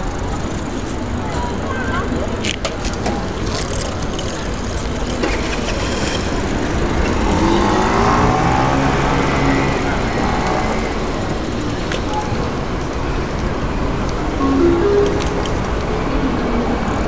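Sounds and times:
vehicle engine passing by: 0:06.0 - 0:11.8.

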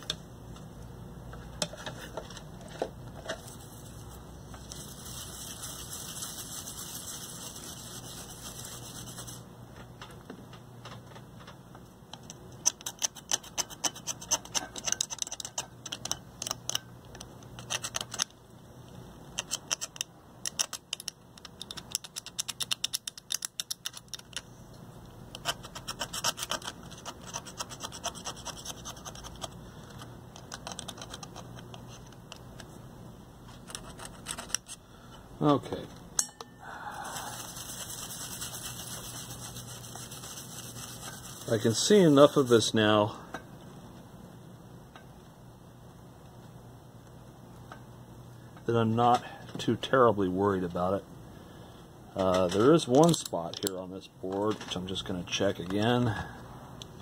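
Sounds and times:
toothbrush scrubbing circuit board: 0:04.0 - 0:09.4, 0:37.1 - 0:42.7.

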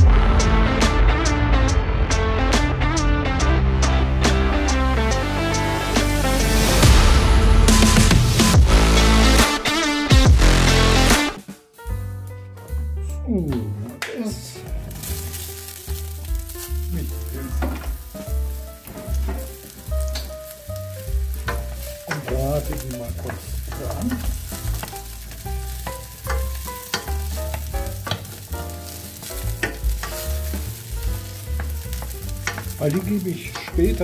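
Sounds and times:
mushrooms sizzling in a pan: 0:13.5 - 0:34.0.

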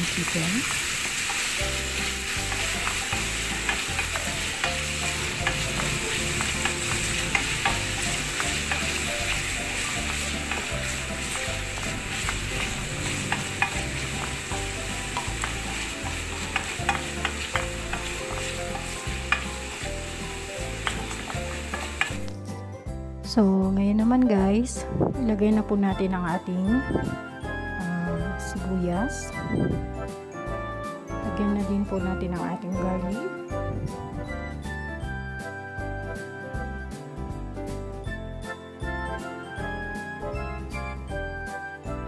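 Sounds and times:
chicken sizzling in frying pan: 0:00.0 - 0:22.4.

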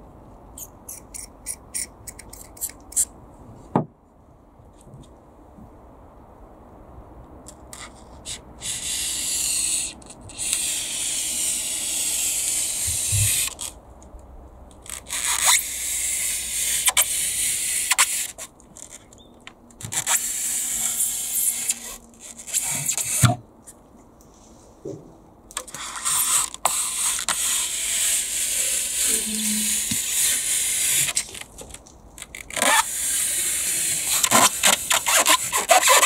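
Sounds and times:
knife cutting foam board squeaking: 0:32.3 - 0:36.0.

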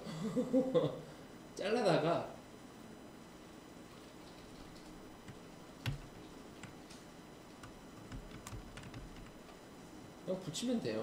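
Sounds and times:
mouse and keyboard clicks: 0:04.7 - 0:07.0, 0:07.6 - 0:09.4.

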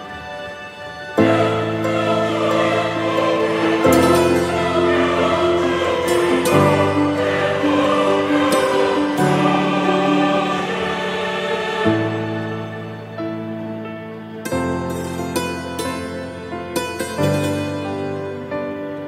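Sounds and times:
slow held music chords: 0:01.2 - 0:19.0.

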